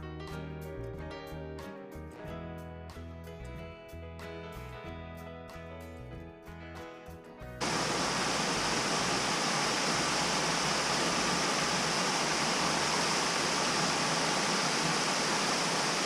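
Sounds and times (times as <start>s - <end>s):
waterfall rushing: 7.6s - 16.0s.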